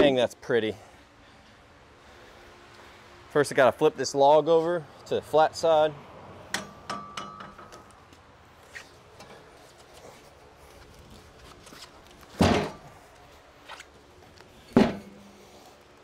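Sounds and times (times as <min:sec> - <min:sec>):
log dropping onto steel bed: 0:12.3 - 0:12.9, 0:14.7 - 0:15.2.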